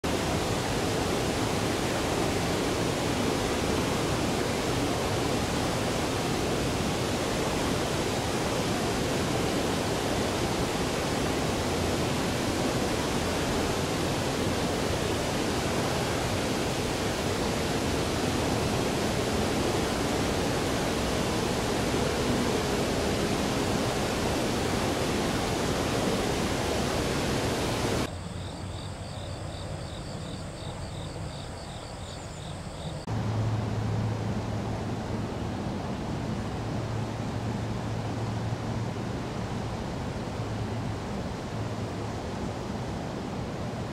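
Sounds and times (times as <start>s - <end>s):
river water rushing: 0.0s - 28.1s, 33.0s - 43.9s
faint insects chirping: 25.6s - 33.1s.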